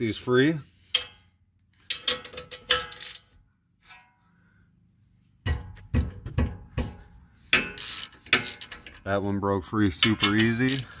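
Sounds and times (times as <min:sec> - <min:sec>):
ratchet and socket clinking: 0:01.8 - 0:03.3, 0:07.5 - 0:09.0, 0:09.9 - 0:11.0
heavy ratchet clunks: 0:05.5 - 0:09.0.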